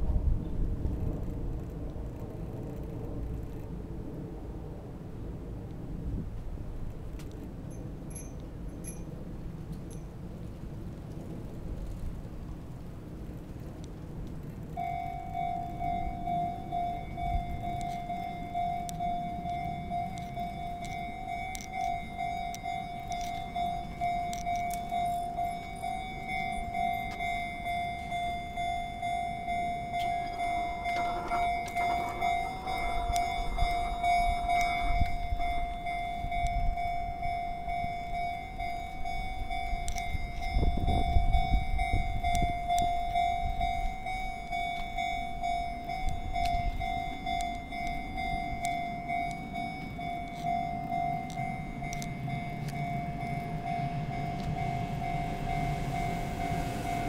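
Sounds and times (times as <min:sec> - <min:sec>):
train rumbling past: 0:00.0 - 0:57.0
level crossing warning bell: 0:07.6 - 0:10.2, 0:14.7 - 0:57.0.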